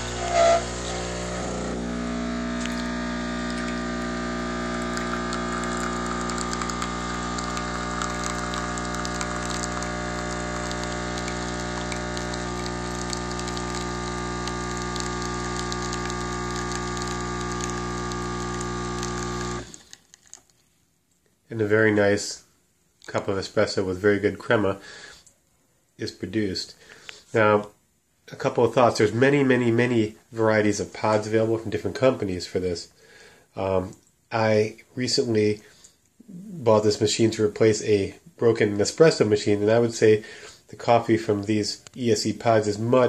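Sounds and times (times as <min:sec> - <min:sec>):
espresso machine pump humming: 0:00.0 - 0:20.0.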